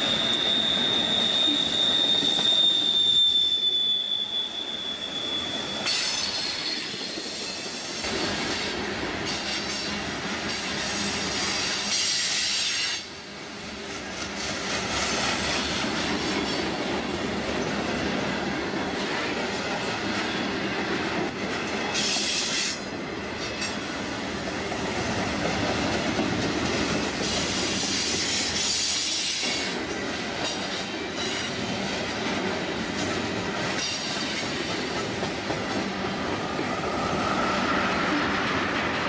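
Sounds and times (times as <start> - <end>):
high-pitched wheel squeal: 0.0 - 8.5
freight cars rolling on rails: 0.0 - 39.0.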